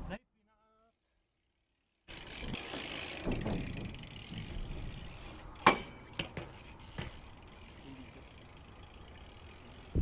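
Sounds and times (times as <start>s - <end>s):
light knocks and clicks from bike: 2.3s - 8.5s
bike metallic clank: 2.5s - 7.4s.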